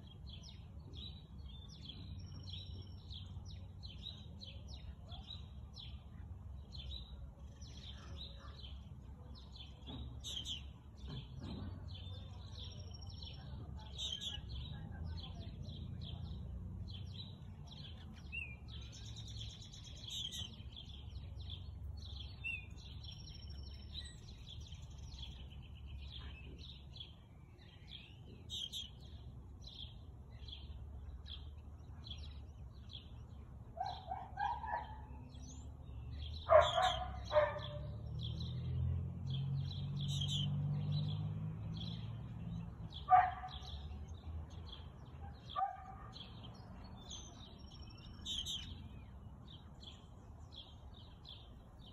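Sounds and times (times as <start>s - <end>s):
birds chirping: 0.0s - 51.9s
dog barking: 33.8s - 35.1s, 36.5s - 37.8s, 43.0s - 43.7s, 45.5s - 46.2s.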